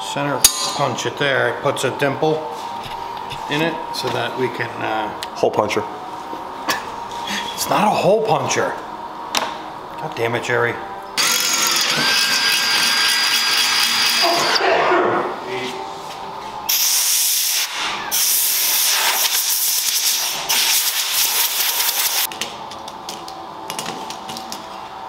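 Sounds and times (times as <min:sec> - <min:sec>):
air blow gun hissing: 0:16.7 - 0:22.3.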